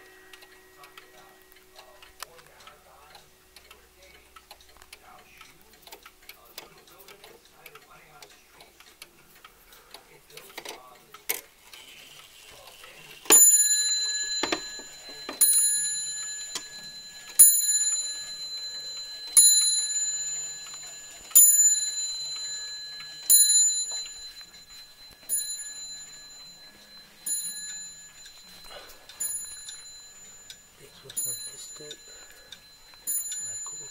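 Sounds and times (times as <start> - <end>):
clock striking on a bell: 0.0 - 3.3, 12.4 - 33.9.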